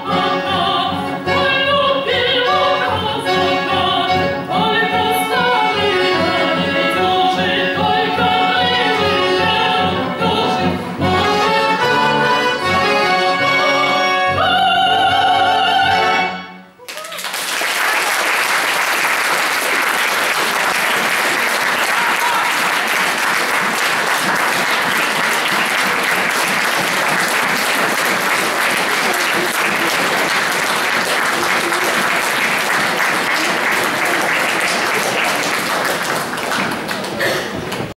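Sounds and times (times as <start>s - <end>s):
audience applauding: 16.8s - 38.0s.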